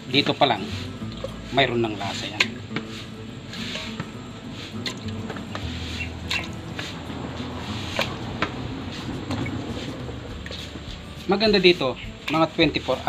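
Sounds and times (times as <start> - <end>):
wet squelching and sloshing: 4.6 - 10.7.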